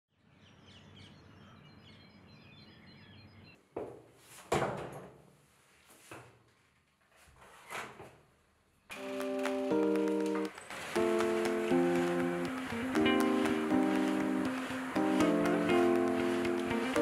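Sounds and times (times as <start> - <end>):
birds chirping: 0.2 - 3.6.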